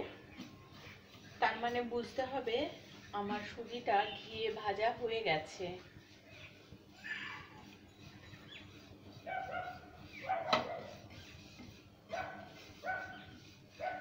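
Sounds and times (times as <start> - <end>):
wooden spatula scraping pan: 0.0 - 14.0
dog barking: 9.3 - 10.9, 12.1 - 13.2, 13.8 - 14.0.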